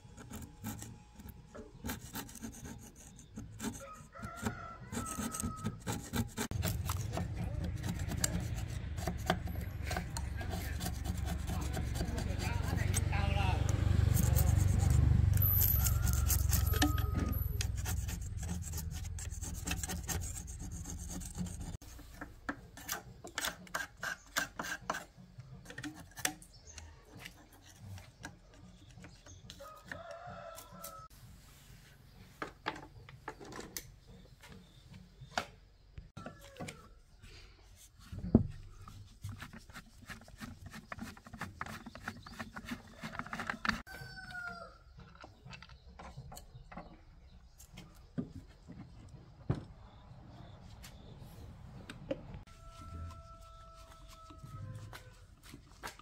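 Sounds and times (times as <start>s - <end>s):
metal blade scraping metal: 14.0s - 22.0s.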